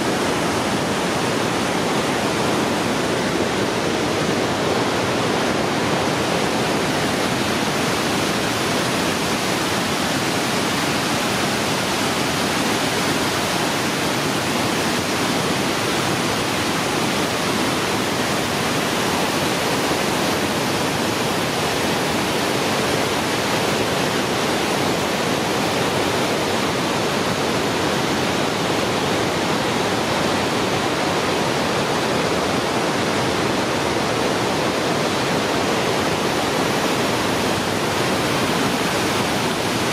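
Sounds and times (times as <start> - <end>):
rushing rapids and waterfall: 0.0 - 39.9.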